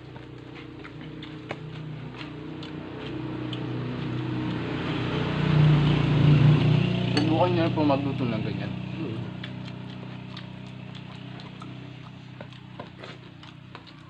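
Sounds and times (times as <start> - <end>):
vehicle engine approaching: 0.0 - 14.0.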